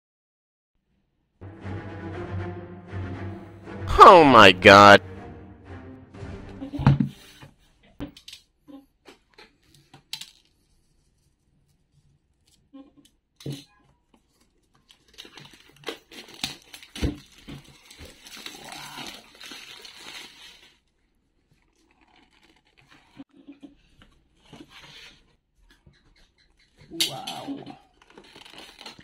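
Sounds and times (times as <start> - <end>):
plastic shrink-wrap crinkling: 14.1 - 23.2, 27.8 - 29.0.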